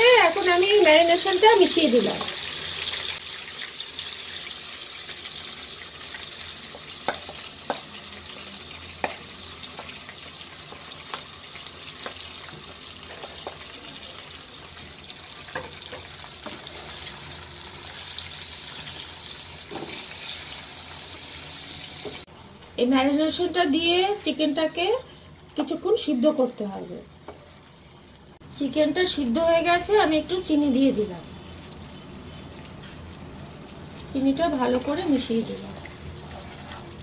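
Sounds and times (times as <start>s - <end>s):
chicken sizzling in oil: 0.0s - 37.0s
spatula tapping bowl and pan: 6.7s - 8.0s, 9.0s - 10.0s.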